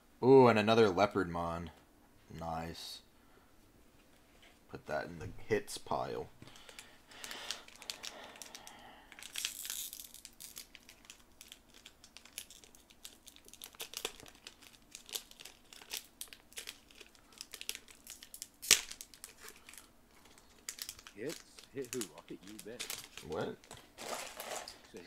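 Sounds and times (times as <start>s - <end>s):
foil pack crinkling and tearing: 6.5s - 25.0s.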